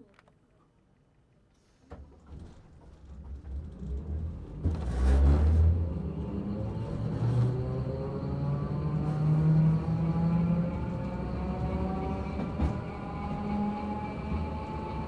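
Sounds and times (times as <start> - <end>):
streetcar motor whine: 2.3 - 15.0.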